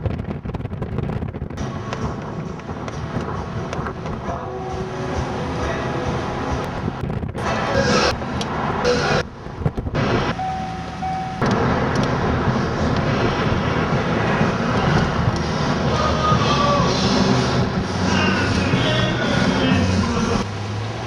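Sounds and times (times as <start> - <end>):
dense rumbling noise: 0.0 - 21.0
brief steady tone: 10.4 - 11.6.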